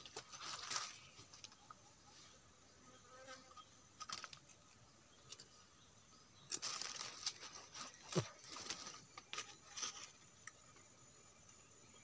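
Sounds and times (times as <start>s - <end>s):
dry leaves rustling: 0.0s - 1.6s, 6.5s - 10.2s.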